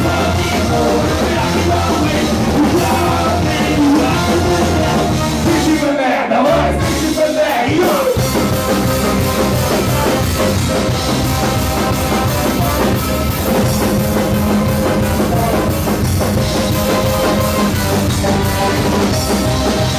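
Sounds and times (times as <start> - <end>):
person singing: 0.0 - 10.2
live ska-punk band: 0.0 - 19.9.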